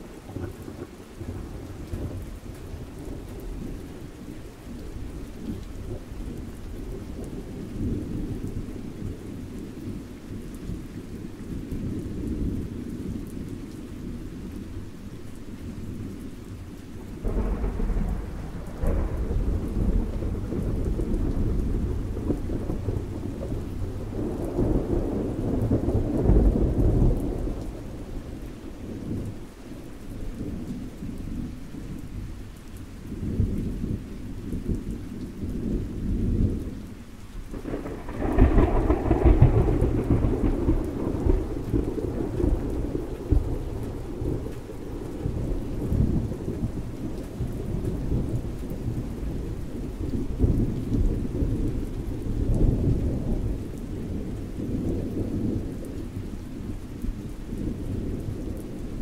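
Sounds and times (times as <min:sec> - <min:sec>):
rain falling: 0:00.0 - 0:59.0
thunder rumbling: 0:17.2 - 0:29.5, 0:37.5 - 0:59.0.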